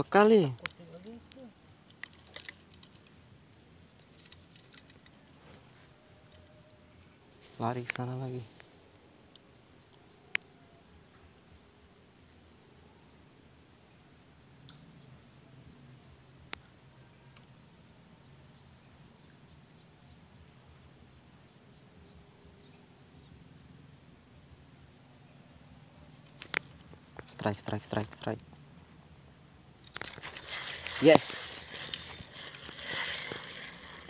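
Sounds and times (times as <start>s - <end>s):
insect trilling: 29.8s - 34.0s.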